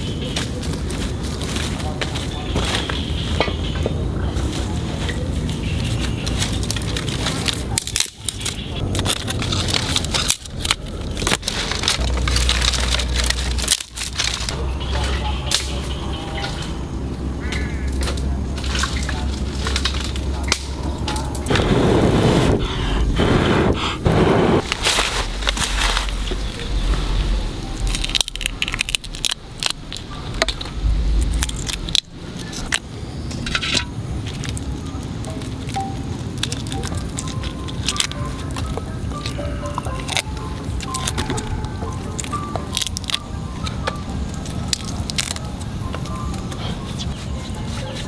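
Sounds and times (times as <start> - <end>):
sticks crackling and scraping: 0.0 - 48.0
low rumble: 8.7 - 36.5
shrimp shells crackling in basket: 27.7 - 32.8, 33.4 - 43.3, 44.3 - 46.2.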